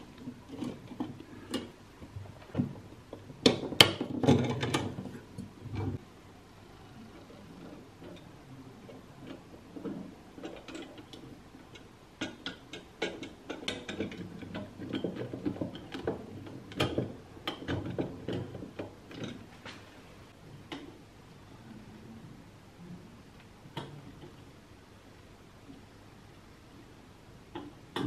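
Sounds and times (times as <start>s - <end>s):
metal rods clicking and scraping: 8.9s - 19.5s.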